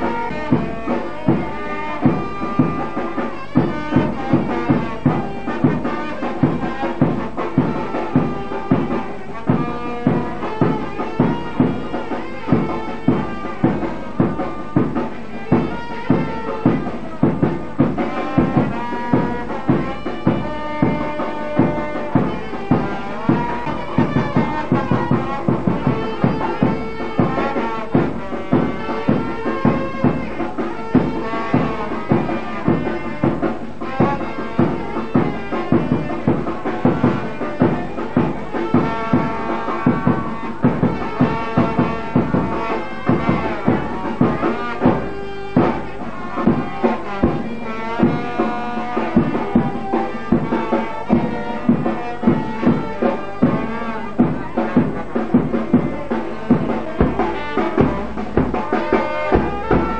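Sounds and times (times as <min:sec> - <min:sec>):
instrumental melody: 0:00.0 - 0:59.9
steady drum beat: 0:00.0 - 0:59.9.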